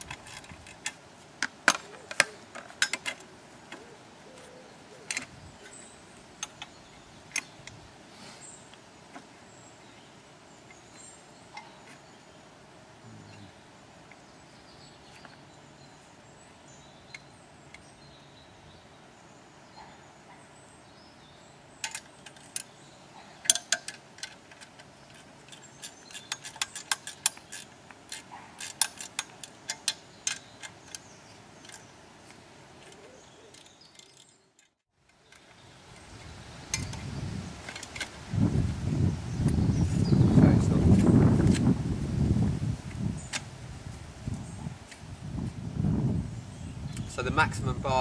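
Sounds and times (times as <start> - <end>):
sharp metal clicks and knocks: 0.0 - 3.8, 6.4 - 7.8, 21.8 - 22.8, 23.4 - 37.0
handling noise: 0.0 - 7.8.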